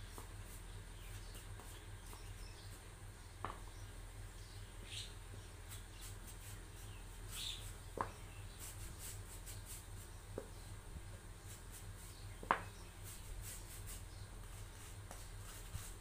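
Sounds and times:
paintbrush brushing on wood: 0.0 - 2.8, 5.6 - 10.5, 11.1 - 16.0.

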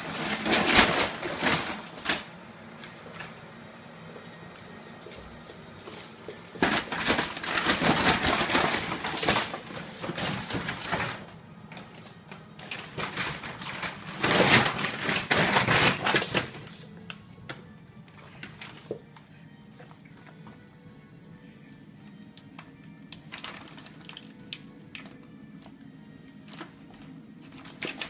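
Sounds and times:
shopping bag rustling and crinkling: 0.0 - 2.3, 5.6 - 17.0, 18.2 - 19.0, 23.2 - 25.1, 26.4 - 28.0.

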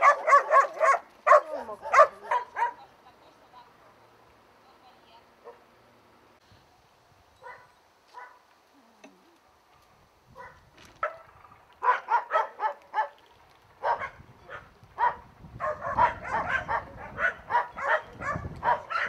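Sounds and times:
dogs barking: 0.0 - 2.8, 7.4 - 8.4, 10.4 - 13.2, 13.8 - 19.0.

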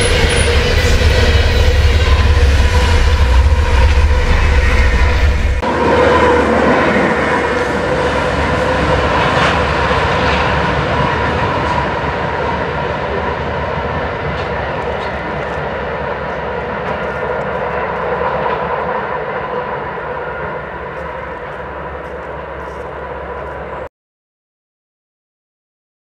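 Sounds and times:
diesel locomotive engines running: 0.0 - 23.9.

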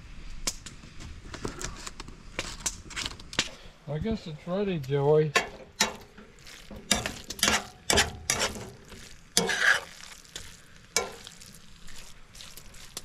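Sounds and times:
faint sizzle of frying: 4.4 - 13.0
metal utensil scraping frying pan: 5.4 - 10.0, 11.0 - 11.4.

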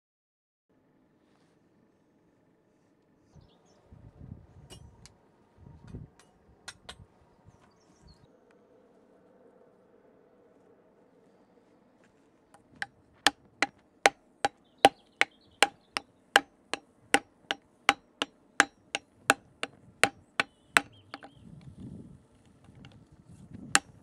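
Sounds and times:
hammer striking steel plate: 17.9 - 19.0.

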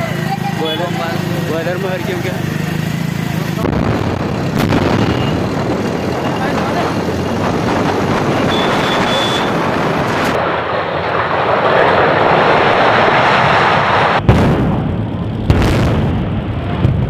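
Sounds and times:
deep demolition rumble: 1.2 - 8.6, 9.6 - 17.0
fireball explosion roar: 3.6 - 17.0
sharp bangs: 3.6 - 17.0.

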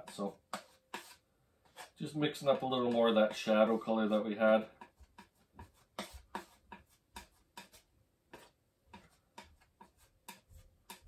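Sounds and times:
palette knife scraping and tapping: 0.0 - 11.0.

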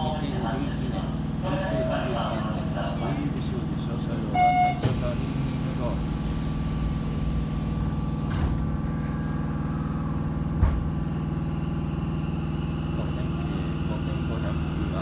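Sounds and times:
train equipment hum: 0.0 - 9.2
sliding doors closing: 8.2 - 8.8
low thump: 10.6 - 10.9.

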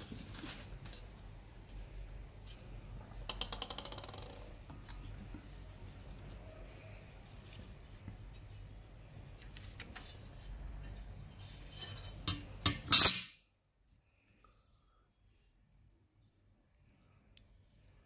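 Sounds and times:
light clicks and rustling: 0.0 - 12.6.

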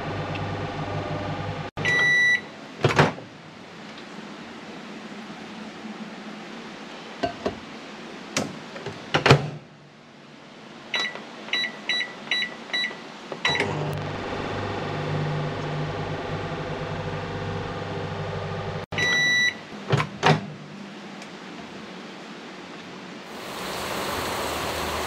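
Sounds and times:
microwave humming: 0.0 - 2.3, 13.5 - 19.5
keypad beeps: 1.8 - 2.4, 11.0 - 13.7, 19.0 - 19.6.

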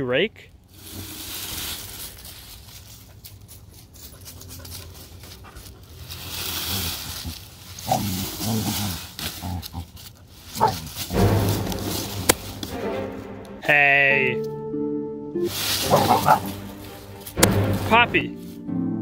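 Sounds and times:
rake through dry leaves: 0.7 - 12.8, 15.5 - 18.6
dog growling: 7.8 - 10.0, 15.8 - 16.6.

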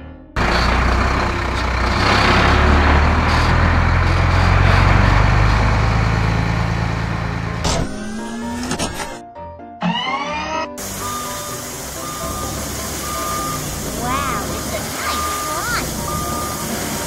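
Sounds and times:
road noise: 0.4 - 7.8, 10.8 - 17.0
truck engines running: 0.4 - 9.2, 10.8 - 17.0.

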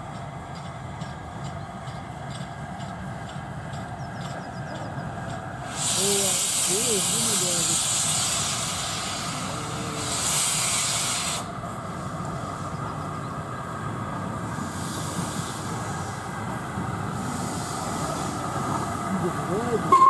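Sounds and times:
steam locomotive rumble: 0.0 - 20.0
loud steam hiss: 5.5 - 20.0.

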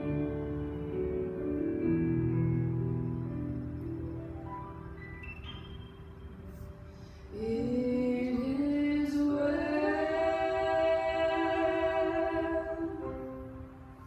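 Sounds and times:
woman singing into microphone: 7.3 - 13.3.

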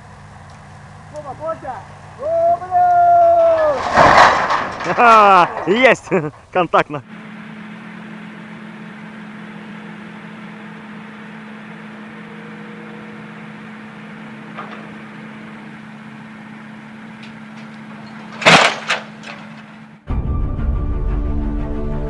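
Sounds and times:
steady mechanical hum: 0.0 - 20.1
metal pylon crashing down: 3.3 - 5.8, 18.2 - 19.6.

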